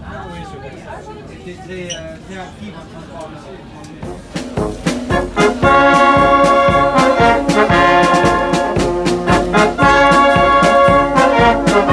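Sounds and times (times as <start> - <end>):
wind band playing chords: 4.0 - 11.9.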